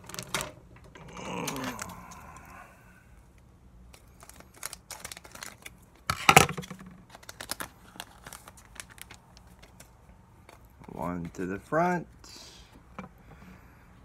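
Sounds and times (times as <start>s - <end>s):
wrapper ripping: 0.0s - 0.4s, 3.9s - 9.9s
wrapper crinkling: 0.0s - 0.5s, 3.9s - 11.1s.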